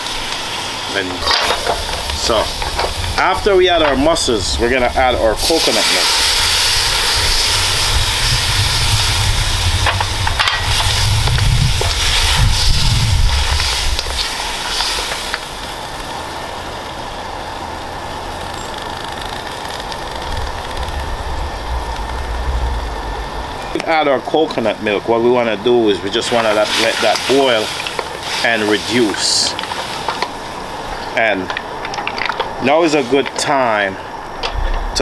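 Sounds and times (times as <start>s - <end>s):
coconut milk sizzling in a wok: 0.0s - 34.1s
low rumble: 1.2s - 14.2s, 19.2s - 24.4s, 34.4s - 35.0s.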